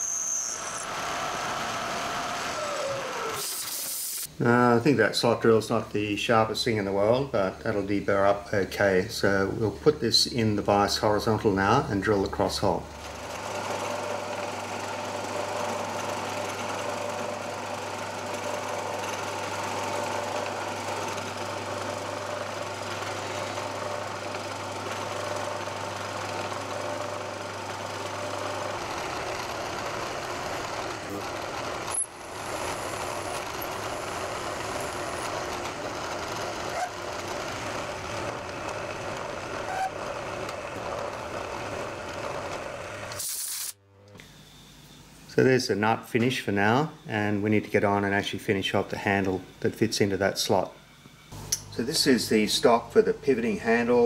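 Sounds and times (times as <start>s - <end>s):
drill boring metal: 0.0s - 4.3s, 13.0s - 43.3s
milling machine spindle running: 12.6s - 43.2s.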